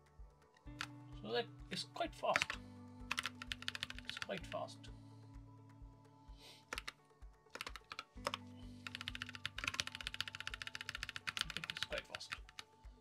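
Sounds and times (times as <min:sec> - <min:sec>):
background music with low beat: 0:00.0 - 0:13.0
typing on computer keyboard: 0:02.3 - 0:04.6, 0:06.7 - 0:12.7.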